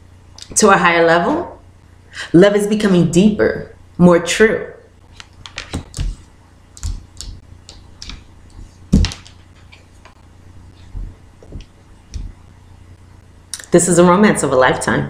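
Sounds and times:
cards tapping and clicking: 0:05.2 - 0:10.2.

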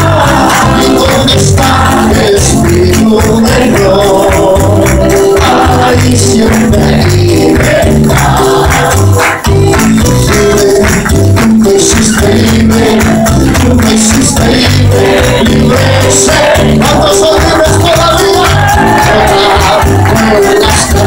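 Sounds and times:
voices singing: 0:00.0 - 0:09.4, 0:10.2 - 0:21.0
live worship band: 0:00.0 - 0:21.0.

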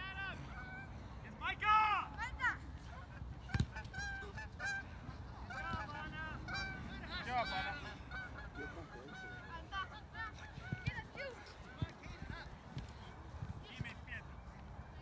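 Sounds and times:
geese honking: 0:03.5 - 0:11.7.

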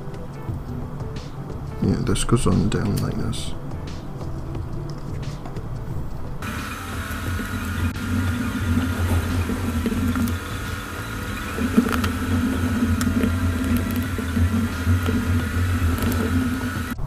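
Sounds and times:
low whir: 0:06.4 - 0:17.0.

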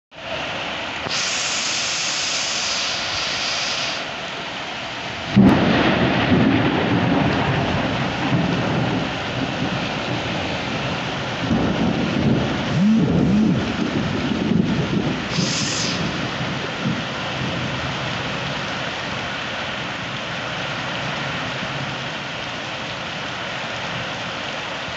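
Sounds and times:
heavy rain on roofs: 0:00.1 - 0:24.9
rolling thunder rumble: 0:05.2 - 0:19.2
loud thunderclap: 0:05.3 - 0:17.9.

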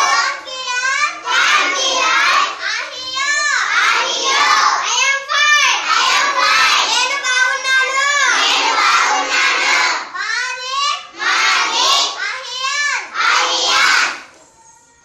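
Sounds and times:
children chanting: 0:00.0 - 0:14.5.

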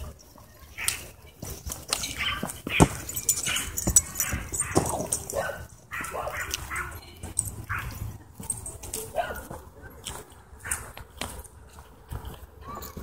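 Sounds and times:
dogs yipping and whining: 0:02.1 - 0:08.0.

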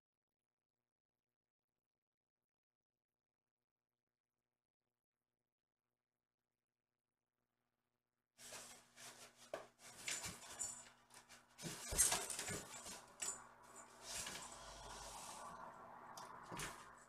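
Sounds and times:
kitten rustling and clattering toys: 0:08.4 - 0:17.0
low electrical hum: 0:09.8 - 0:17.0.

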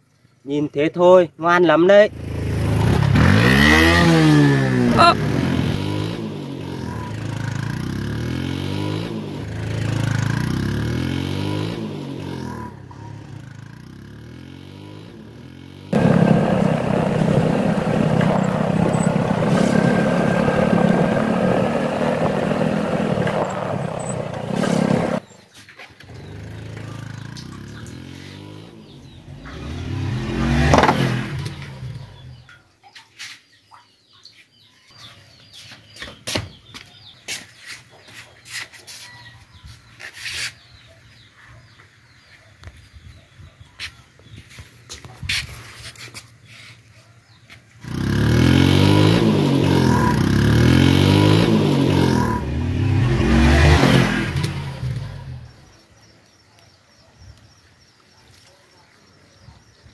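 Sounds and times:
scooter engine revving: 0:02.1 - 0:25.4, 0:26.0 - 0:32.5, 0:47.8 - 0:55.8.

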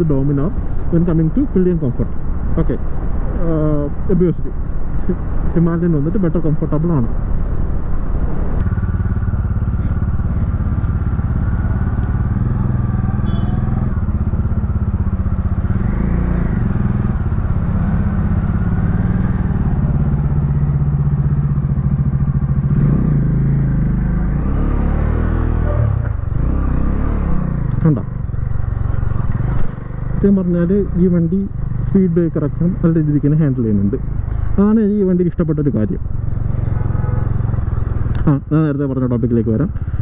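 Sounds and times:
motorcycle engine running: 0:08.2 - 0:40.0.

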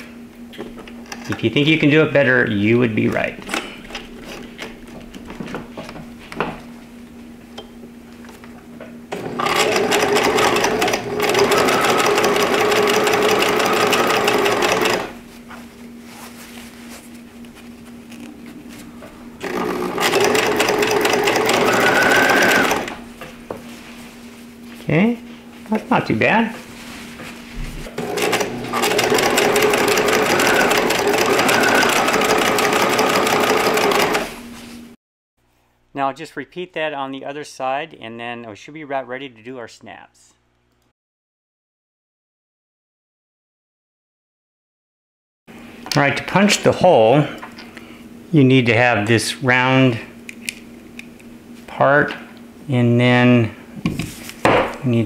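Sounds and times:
sewing machine stitching: 0:09.1 - 0:15.2, 0:19.4 - 0:23.0, 0:27.9 - 0:34.4.

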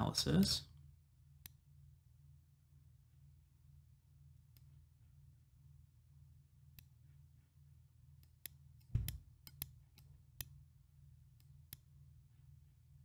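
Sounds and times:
low steady hum: 0:00.0 - 0:13.0
computer mouse clicks: 0:08.2 - 0:10.6
dull thump: 0:08.9 - 0:09.2.

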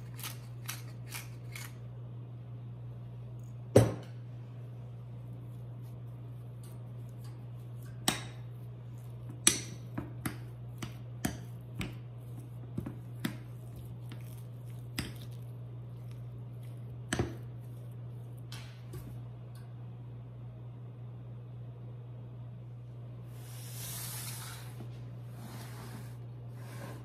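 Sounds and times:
steady low hum: 0:00.0 - 0:27.0.

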